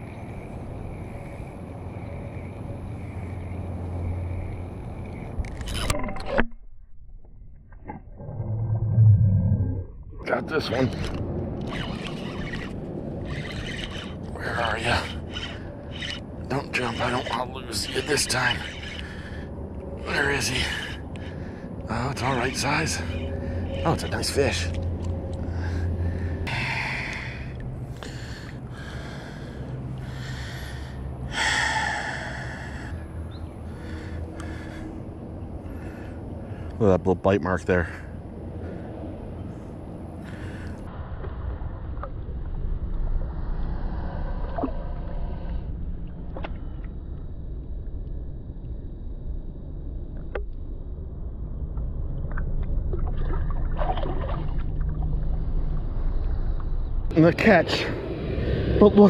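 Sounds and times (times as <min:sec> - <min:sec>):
steady low rumble: 0:00.0 - 0:59.0
water sloshing and splashing: 0:09.9 - 0:30.8, 0:51.7 - 0:56.8
man breathing hard: 0:19.0 - 0:19.6, 0:25.4 - 0:36.8, 0:40.2 - 0:40.9.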